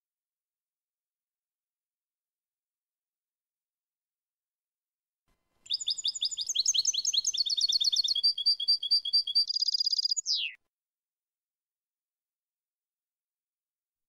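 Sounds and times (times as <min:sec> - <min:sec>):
goldfinch singing: 0:05.7 - 0:10.6.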